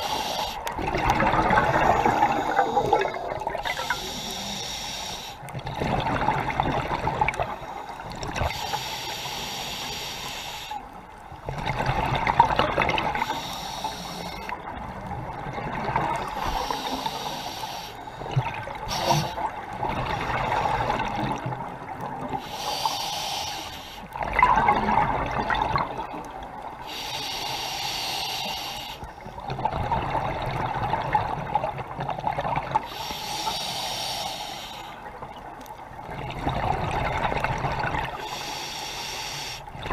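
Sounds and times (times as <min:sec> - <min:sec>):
regulator hiss on inhalation: 0:00.0 - 0:00.7, 0:03.6 - 0:05.5, 0:07.6 - 0:10.8, 0:13.2 - 0:14.6, 0:16.4 - 0:18.2, 0:18.8 - 0:19.5, 0:22.4 - 0:24.1, 0:26.8 - 0:29.1, 0:32.8 - 0:35.1, 0:38.1 - 0:39.7
bubbles rushing on exhalation: 0:00.8 - 0:03.7, 0:24.2 - 0:26.1.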